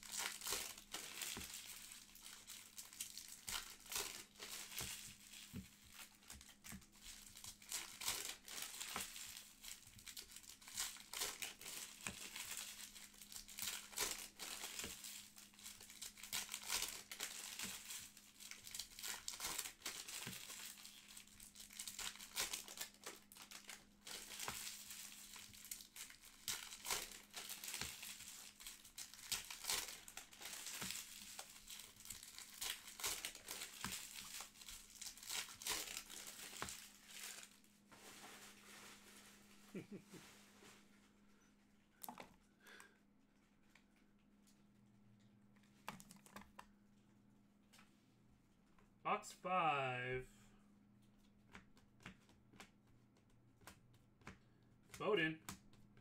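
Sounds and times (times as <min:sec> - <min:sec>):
card pack wrappers crinkling and tearing: 0:00.0 - 0:38.2
faint steady low hum: 0:00.1 - 0:56.0.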